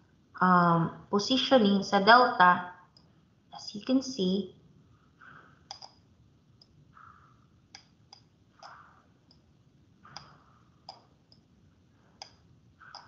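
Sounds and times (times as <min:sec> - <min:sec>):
faint irregular clicks: 0:05.2 - 0:06.0, 0:06.6 - 0:09.5, 0:10.1 - 0:11.5, 0:12.1 - 0:13.0.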